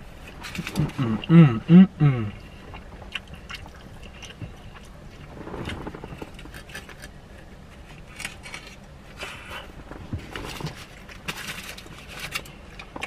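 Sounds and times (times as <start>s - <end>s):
man chewing: 0.0s - 13.0s
foil wrapper crinkling: 10.3s - 12.9s.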